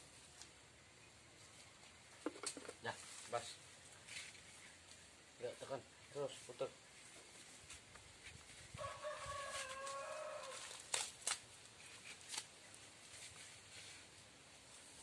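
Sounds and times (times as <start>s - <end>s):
rooster crowing: 8.8s - 10.8s.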